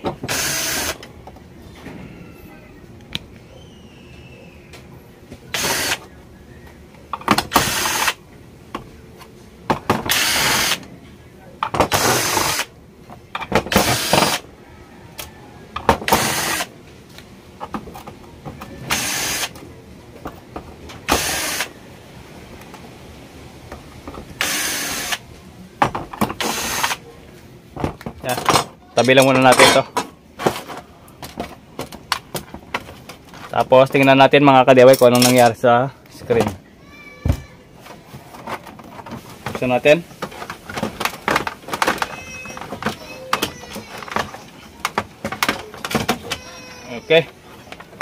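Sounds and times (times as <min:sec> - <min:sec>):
cordless drill short bursts: 0:00.3 - 0:01.0, 0:05.5 - 0:06.0, 0:07.5 - 0:08.2, 0:10.1 - 0:10.8, 0:11.9 - 0:12.7, 0:13.7 - 0:14.4, 0:16.1 - 0:16.7, 0:18.9 - 0:19.5, 0:21.1 - 0:21.7, 0:24.4 - 0:25.2, 0:26.4 - 0:27.0.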